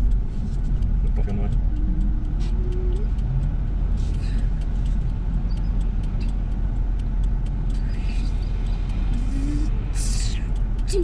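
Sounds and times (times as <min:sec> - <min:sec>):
car idling rumble: 0:00.0 - 0:11.0
traffic passing hiss: 0:03.6 - 0:05.4, 0:07.1 - 0:11.0.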